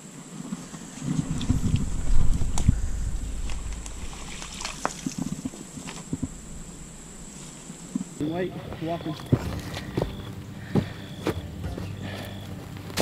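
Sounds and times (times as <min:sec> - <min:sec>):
water sloshing and streaming: 0:00.6 - 0:08.2.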